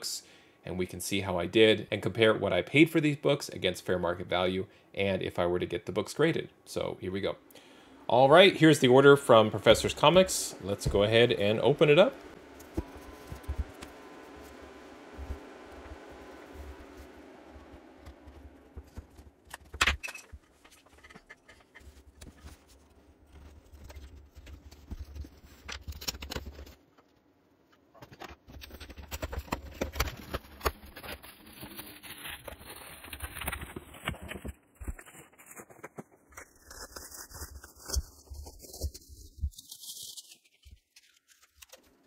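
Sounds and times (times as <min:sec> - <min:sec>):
plastic wrap crinkling: 0:09.2 - 0:19.5, 0:28.3 - 0:42.0
cardboard box scraping and rustling: 0:09.6 - 0:19.4, 0:28.5 - 0:40.4
packing tape peeling: 0:28.5 - 0:41.8.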